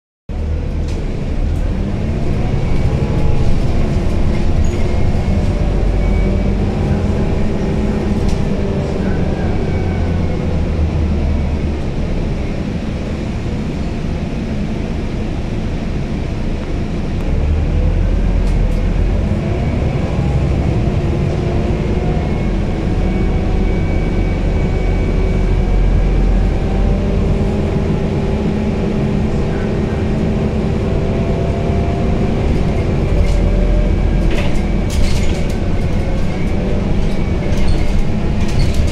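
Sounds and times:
bus engine low rumble: 0.3s - 38.9s
drivetrain whine: 0.3s - 38.9s.

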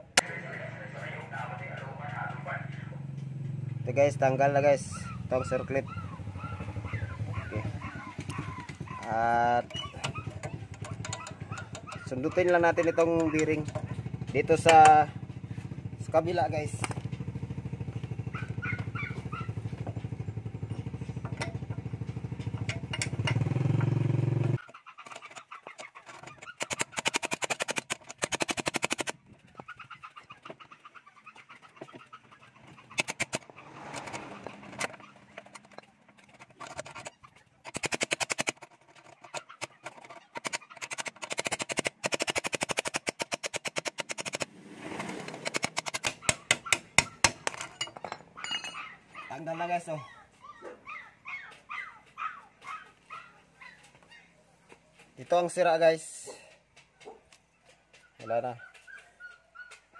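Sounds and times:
vehicle engine running: 0.0s - 24.6s, 31.4s - 40.5s.

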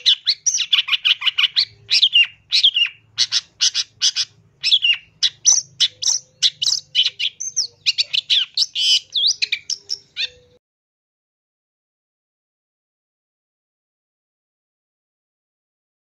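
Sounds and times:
bird chattering and whistling: 0.0s - 10.6s.

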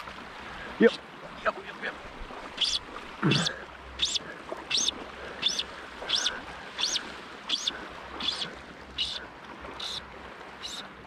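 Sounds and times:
bird calling high note: 2.6s - 9.2s.

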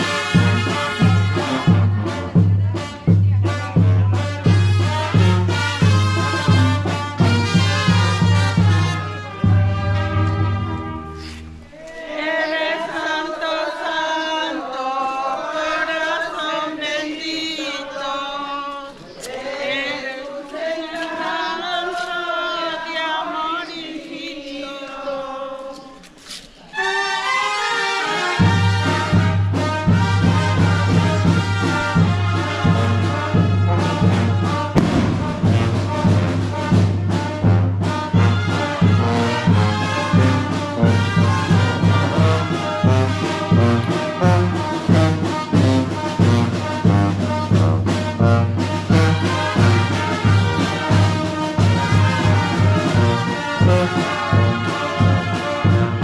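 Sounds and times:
brass band playing: 0.0s - 11.7s, 26.7s - 56.0s
people singing: 0.0s - 56.0s.

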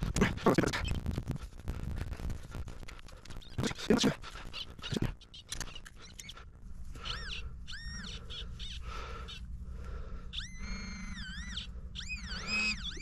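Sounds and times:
metal detector electronic whine: 10.3s - 13.0s.

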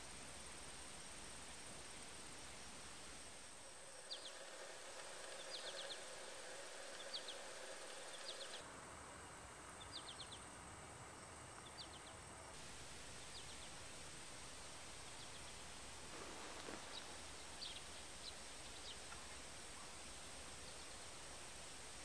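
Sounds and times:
steady hiss: 0.0s - 22.0s
thin high whine: 1.2s - 8.7s
faint high chirps: 3.5s - 8.6s.

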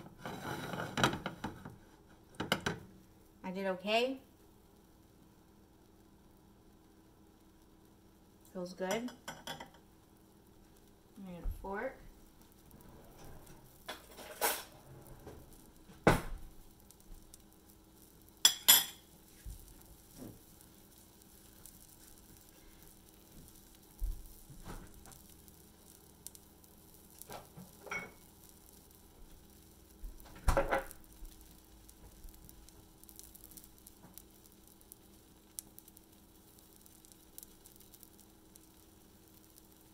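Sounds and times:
pancake sizzling in a pan: 0.0s - 39.9s
steady low hum: 1.0s - 39.9s
cutlery and kitchenware clinking: 13.9s - 14.7s.

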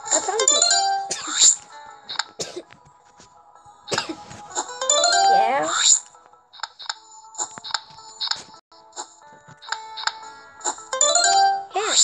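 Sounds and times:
bright game chime: 4.8s - 5.6s, 11.0s - 11.8s.

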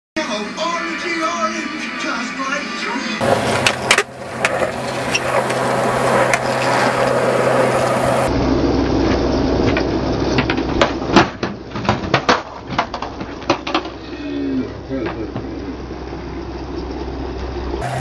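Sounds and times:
skateboard clacking on concrete: 3.2s - 7.2s, 10.7s - 14.0s
low hum: 3.2s - 18.0s
skateboard wheels rolling on concrete: 3.2s - 18.0s.

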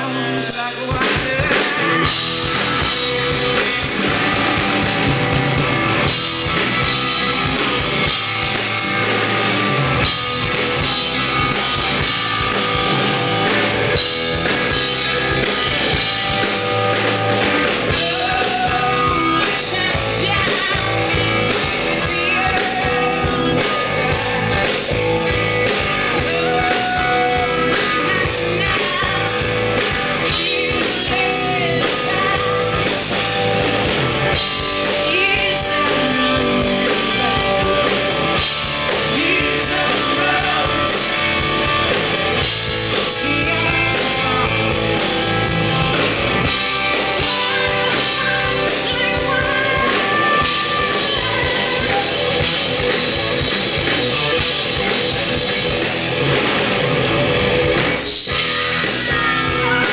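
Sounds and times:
bass guitar: 0.0s - 59.9s
drum kit: 0.0s - 59.9s
electric guitars: 0.0s - 59.9s
woman singing lead: 10.5s - 45.2s, 46.4s - 53.2s, 58.1s - 59.9s.

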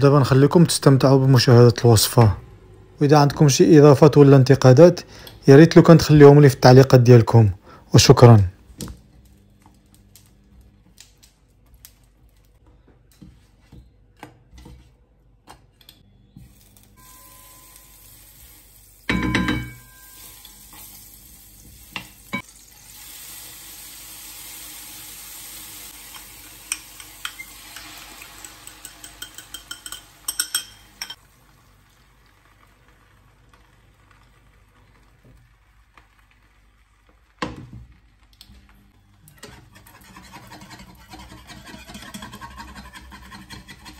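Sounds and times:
butter and cheese sizzling: 16.3s - 43.9s.

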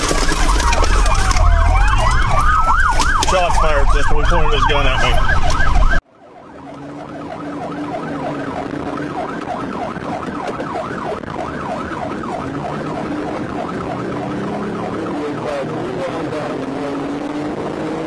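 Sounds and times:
car engine: 0.0s - 18.0s
police siren yelping: 0.0s - 18.0s.

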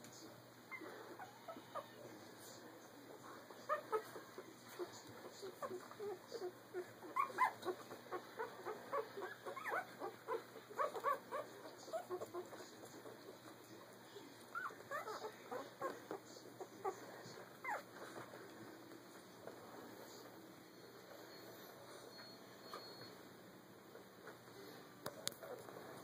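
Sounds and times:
puppies whimpering and squeaking: 0.7s - 2.0s, 3.5s - 13.7s, 14.5s - 18.4s, 19.8s - 23.2s.

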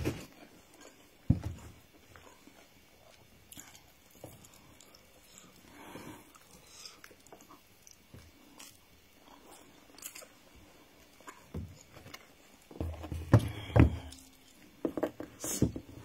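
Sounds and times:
knocks and rustles: 1.2s - 1.8s, 11.4s - 16.0s
person chewing food: 1.9s - 15.0s.

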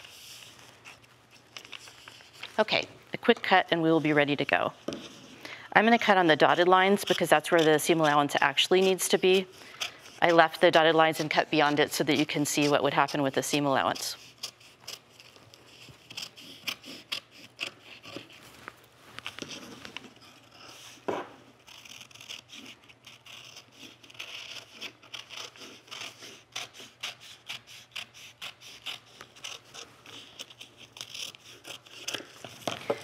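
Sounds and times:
scissors snipping paper and fabric: 6.1s - 18.4s, 21.6s - 33.0s.

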